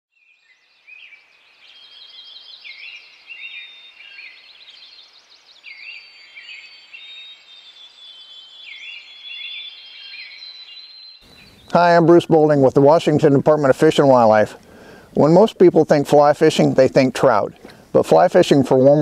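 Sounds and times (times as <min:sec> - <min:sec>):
bird trills and whistles: 0:01.0 - 0:11.7.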